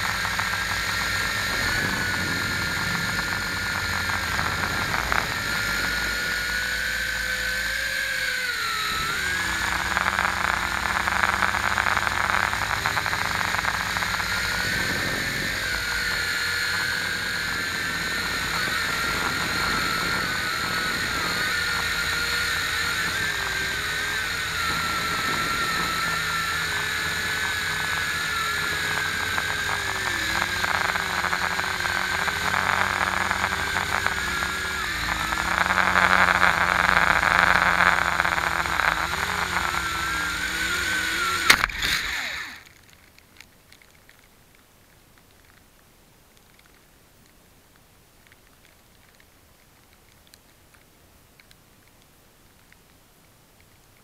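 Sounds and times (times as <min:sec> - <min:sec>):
steady rushing noise: 0:00.0 - 0:42.6
electric motor and propeller whine: 0:00.0 - 0:42.9.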